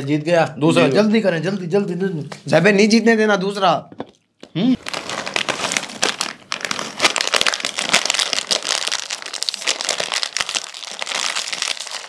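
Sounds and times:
plastic snack packet crinkling: 4.8 - 12.0.

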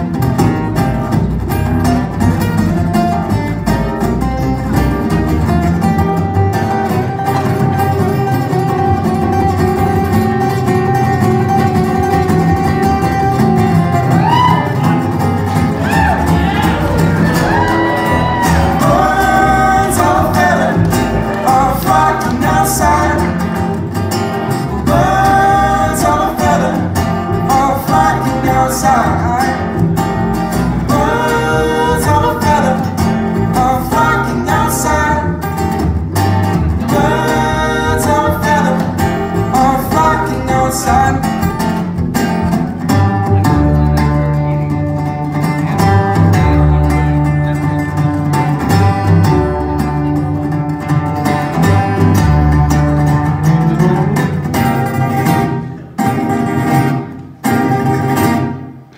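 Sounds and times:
acoustic guitars: 0.0 - 58.9
upright bass: 0.0 - 58.9
person singing: 15.7 - 23.8, 24.4 - 35.7, 36.8 - 42.0.

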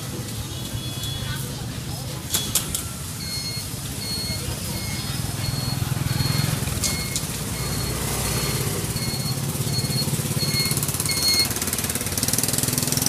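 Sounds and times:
short high electronic beeps: 3.2 - 11.6.

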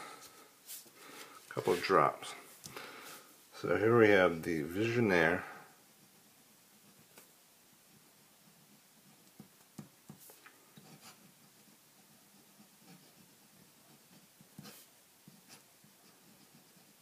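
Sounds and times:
pen nib scratching on paper: 10.8 - 17.0.

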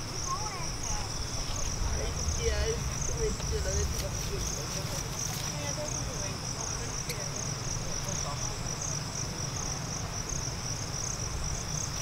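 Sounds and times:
insects trilling: 0.0 - 12.0
low rumble: 1.1 - 6.5.

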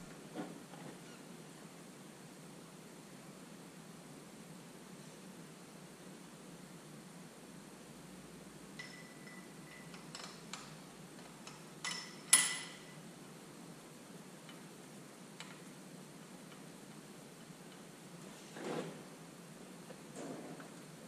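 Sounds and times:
sharp ringing metal clank: 11.8 - 13.0.

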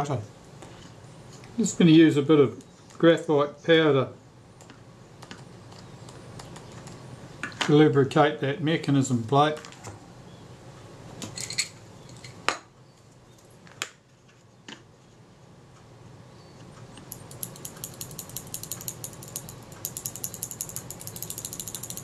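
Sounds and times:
fine ticking of shutter mechanism: 17.0 - 22.0.

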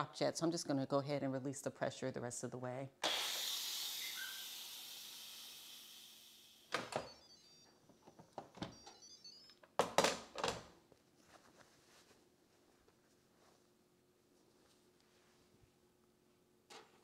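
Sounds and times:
pressure cooker steam hiss: 3.0 - 6.7.

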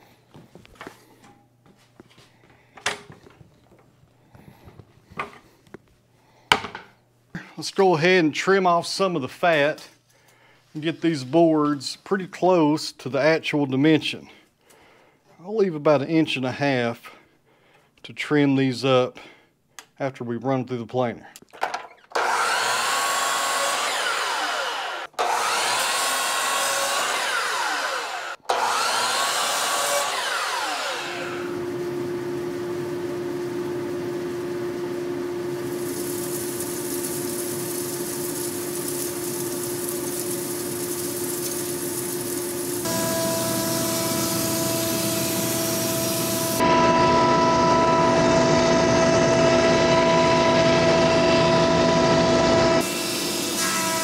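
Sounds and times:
power saw cutting boards: 21.9 - 54.0.

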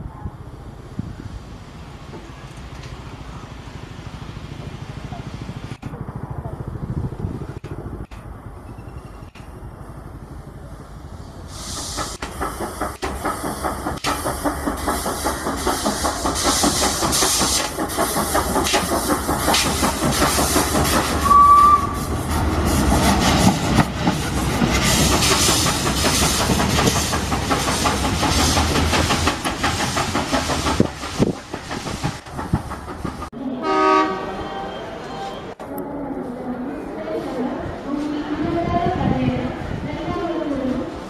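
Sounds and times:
steam locomotive exhaust beating: 9.1 - 34.2
steam hissing: 11.0 - 33.3
wheels clicking over rail joints: 11.9 - 21.8
train whistle: 21.2 - 22.1, 33.6 - 35.5.

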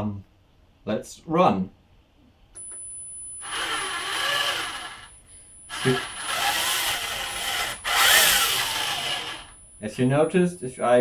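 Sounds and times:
motor whine wavering in pitch: 3.4 - 5.1, 5.7 - 9.6.

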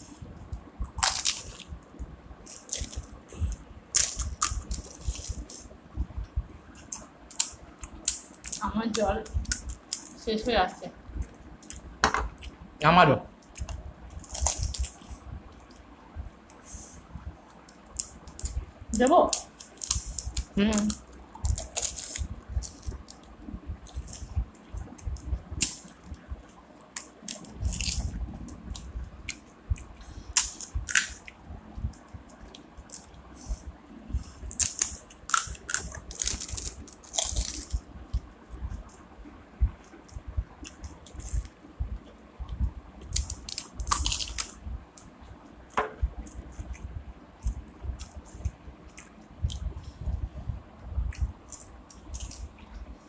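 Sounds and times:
crunching and chewing: 0.8 - 1.8, 2.4 - 5.7, 13.4 - 15.8, 19.4 - 33.3, 34.3 - 39.0, 39.8 - 42.2, 43.0 - 45.1, 45.7 - 49.7, 51.1 - 52.9
crisp shells cracking: 1.0 - 1.6, 14.2 - 15.0, 19.4 - 23.3, 34.5 - 37.8, 43.1 - 44.6.

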